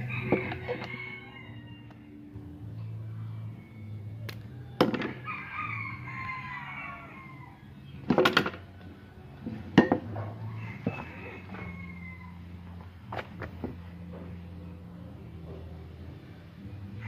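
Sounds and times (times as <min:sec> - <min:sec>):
rooster crowing: 0:00.0 - 0:02.3, 0:05.1 - 0:08.0, 0:10.4 - 0:12.7.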